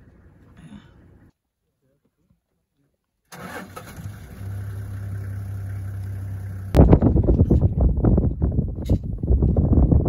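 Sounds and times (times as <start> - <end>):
vehicle engine starting and idling: 3.3 - 6.8.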